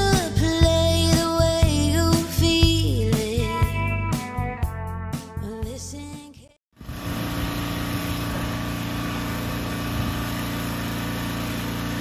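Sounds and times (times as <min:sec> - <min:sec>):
lawn mower engine running: 0:06.8 - 0:12.0.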